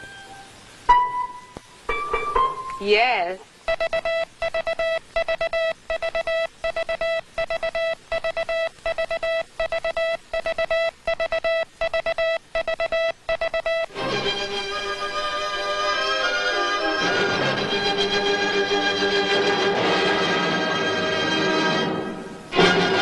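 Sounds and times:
music: 0.0s - 3.1s, 13.9s - 23.0s
morse code buzzy tone: 3.7s - 14.0s.

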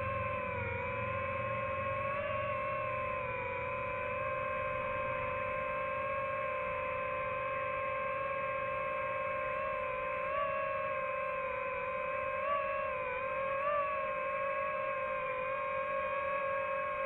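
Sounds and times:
drone propellers whining: 0.0s - 17.0s.

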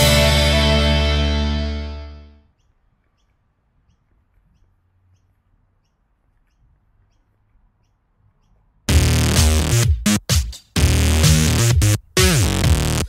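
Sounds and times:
electronic music with drum-machine beat: 0.0s - 1.0s, 8.9s - 13.0s
faint bird chirps: 2.5s - 8.8s.

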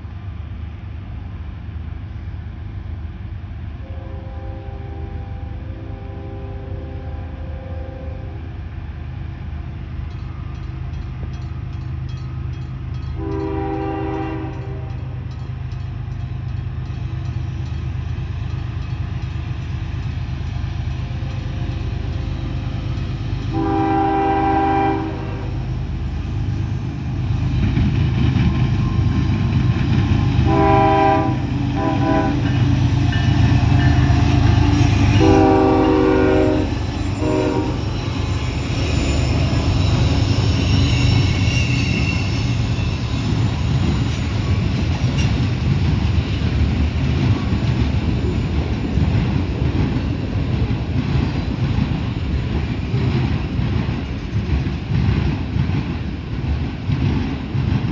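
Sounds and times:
train rumbling past: 0.0s - 57.9s
locomotive horn blasts: 3.8s - 8.5s, 13.2s - 15.2s, 23.5s - 25.7s, 30.4s - 32.6s, 34.9s - 38.0s.

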